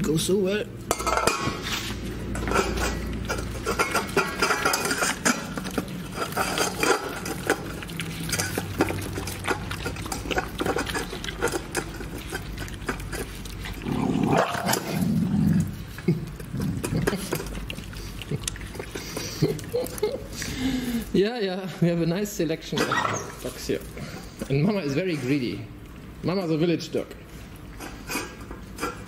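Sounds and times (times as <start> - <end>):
dogs lapping and chewing: 0.0 - 29.0
bowl scraping on metal: 0.9 - 15.1.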